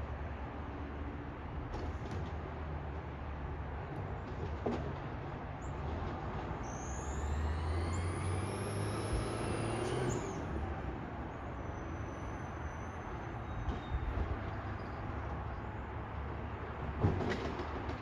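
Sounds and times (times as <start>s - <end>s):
hydraulic whine: 6.6s - 10.8s
diesel engine revving: 6.6s - 11.2s.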